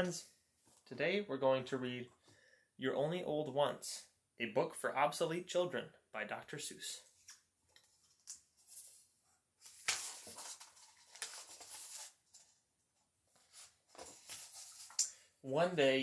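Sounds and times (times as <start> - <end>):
book pages turning: 7.2 - 12.6, 13.3 - 15.1.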